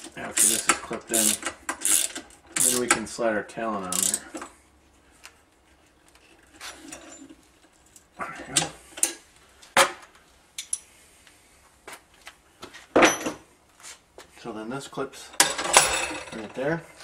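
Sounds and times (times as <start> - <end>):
metal parts clanking: 15.4 - 16.6.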